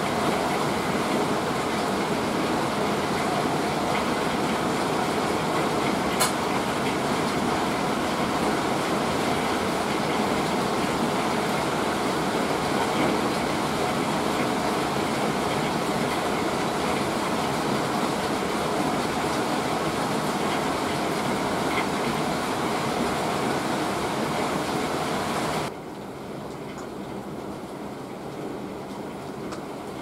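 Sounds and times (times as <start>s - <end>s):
hail and rain pounding on house: 0.0s - 30.0s
sharp click: 6.2s - 6.4s.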